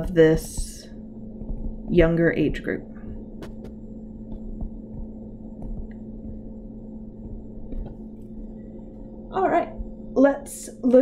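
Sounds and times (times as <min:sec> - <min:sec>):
stylus tapping on tablet: 0:00.0 - 0:01.8, 0:03.4 - 0:06.5, 0:07.2 - 0:08.4
low electrical hum: 0:00.0 - 0:11.0.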